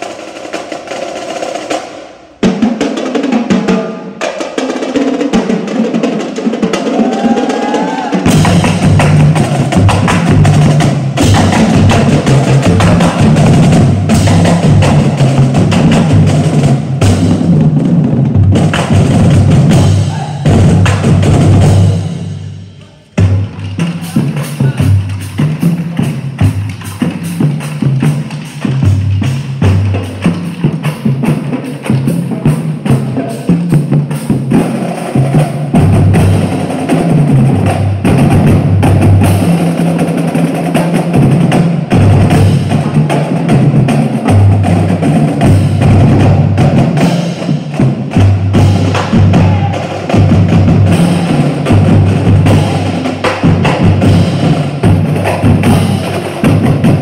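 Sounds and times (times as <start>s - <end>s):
snare drum strokes and rolls: 0.0s - 22.5s, 23.2s - 57.0s
bass drums: 5.3s - 57.0s.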